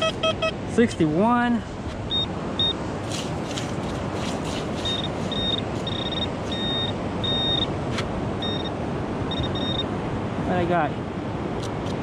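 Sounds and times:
high steady beeps: 0.0 - 0.6, 2.1 - 2.8, 4.8 - 7.8, 8.4 - 9.9
sand scraping: 3.0 - 6.8.

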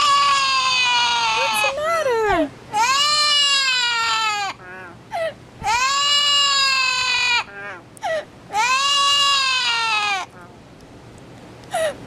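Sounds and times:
parrot cries: 0.0 - 2.0, 2.7 - 10.4
parrot yelps: 2.7 - 5.0, 5.6 - 7.8, 8.5 - 10.4.

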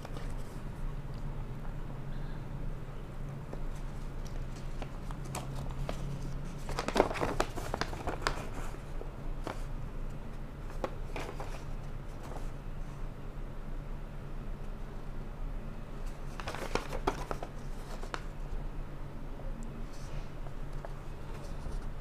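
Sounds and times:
paper rustling and crinkling: 0.0 - 0.6, 3.4 - 9.7, 10.6 - 12.6, 16.0 - 18.4, 20.0 - 22.0.

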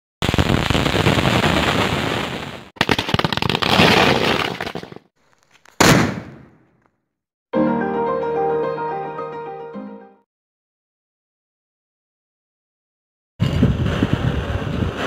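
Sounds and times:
firecrackers crackling: 0.2 - 5.0, 5.6 - 6.7, 13.4 - 15.0
firework burst: 5.8 - 6.5, 13.4 - 15.0.

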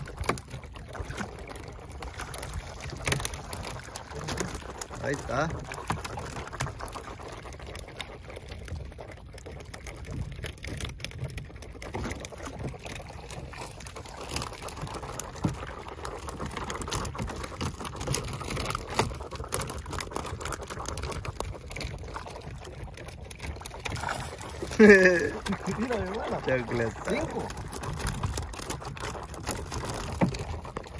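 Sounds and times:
seawater splashing off a net: 23.7 - 30.9.

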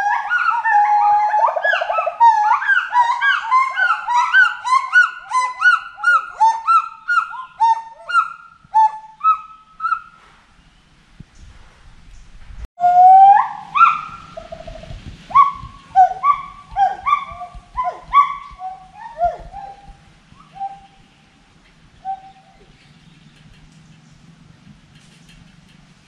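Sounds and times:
gibbon whooping calls: 0.0 - 10.1, 12.8 - 21.0, 22.0 - 22.8.

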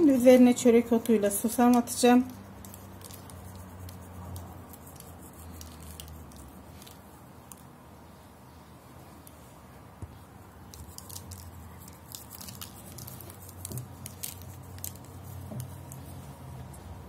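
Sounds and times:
seeds ticking on baking tray: 0.9 - 7.7.

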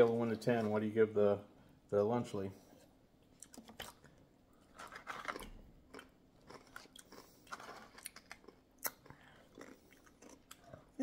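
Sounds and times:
chewing crunchy chips: 3.4 - 11.0.

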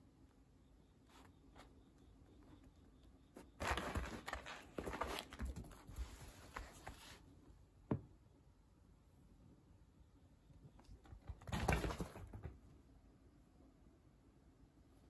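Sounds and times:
cat scuffling on mats: 3.4 - 7.4.

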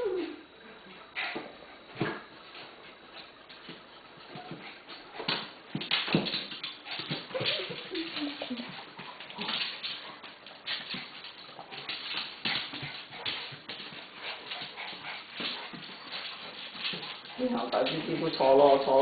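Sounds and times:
dog whimpering: 0.0 - 0.6
dogs playfighting: 0.0 - 19.0.

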